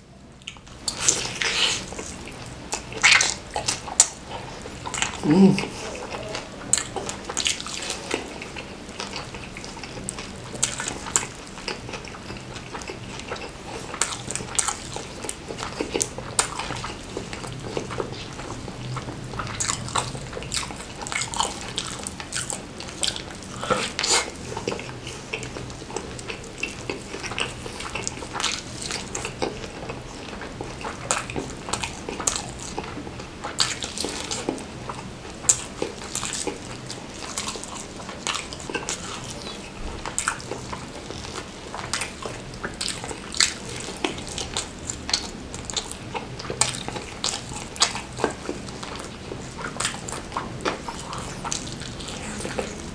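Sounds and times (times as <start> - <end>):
biting and wet chewing: 0.3 - 52.9.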